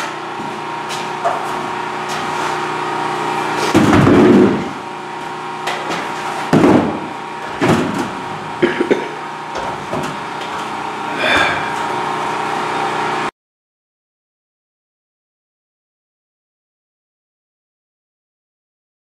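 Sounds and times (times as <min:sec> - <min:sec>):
steady hum: 0:00.0 - 0:13.3.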